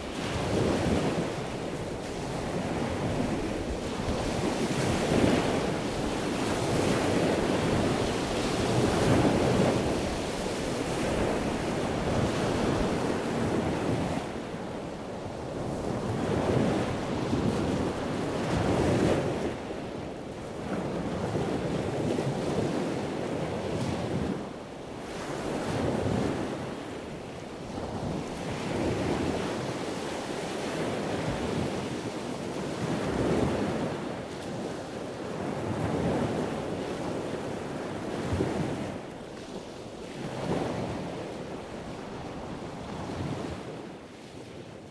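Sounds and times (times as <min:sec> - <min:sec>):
waves breaking: 0:00.0 - 0:19.7
wind: 0:00.0 - 0:44.9.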